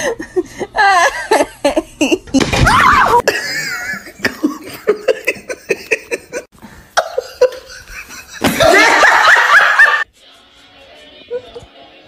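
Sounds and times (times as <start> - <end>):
person laughing: 3.2 - 10.0.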